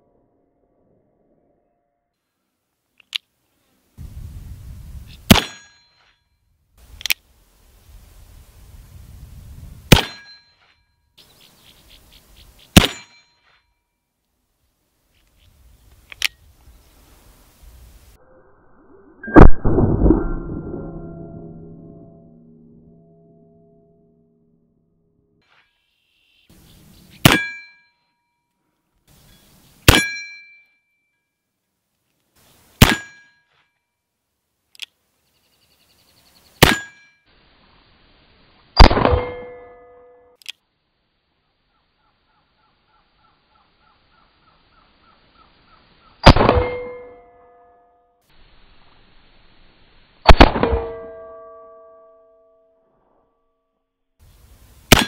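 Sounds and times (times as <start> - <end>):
bullets clanging on steel plate: 12.8 - 13.6
short ringing tone: 18.2 - 24.3.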